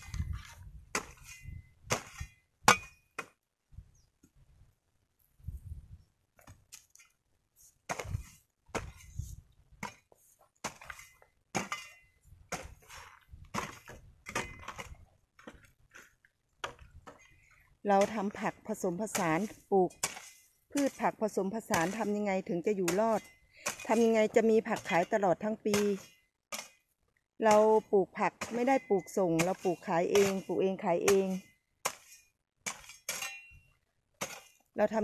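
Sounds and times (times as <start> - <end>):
hoe chopping stony soil: 0.0 - 3.4, 6.4 - 35.0
metallic ring of blade on stones: 33.0 - 33.6.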